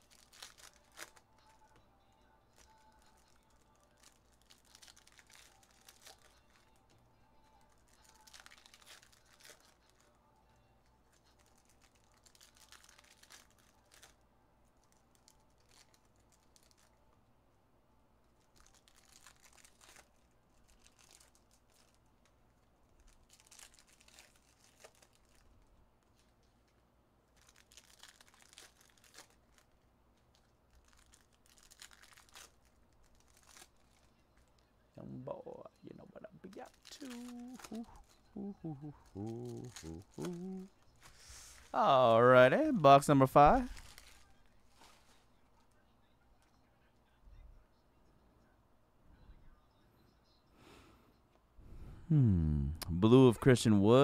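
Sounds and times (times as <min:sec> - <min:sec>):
foil wrappers crinkling and tearing: 0:00.0 - 0:01.7, 0:02.5 - 0:06.9, 0:07.6 - 0:10.1, 0:11.1 - 0:17.0, 0:18.4 - 0:34.6, 0:36.5 - 0:38.4, 0:39.0 - 0:45.8.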